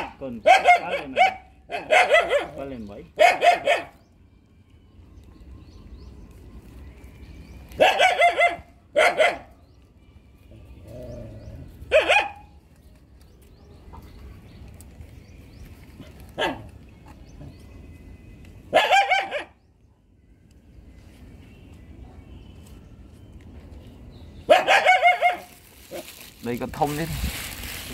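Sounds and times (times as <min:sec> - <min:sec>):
dog barking: 0:00.0 - 0:02.6, 0:03.2 - 0:04.0, 0:07.8 - 0:09.6, 0:11.9 - 0:12.5, 0:16.4 - 0:16.7, 0:18.7 - 0:19.6, 0:24.5 - 0:26.0.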